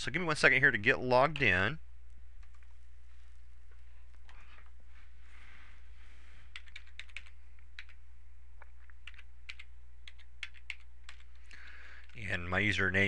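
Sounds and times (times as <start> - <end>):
steady low hum: 0.0 - 13.0
typing on a keyboard: 6.5 - 8.0, 8.8 - 11.4.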